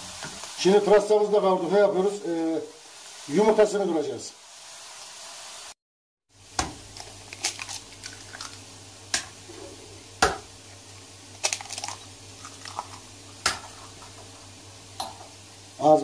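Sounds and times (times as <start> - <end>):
eggs cracking on a bowl: 6.6 - 9.4, 11.4 - 14.1.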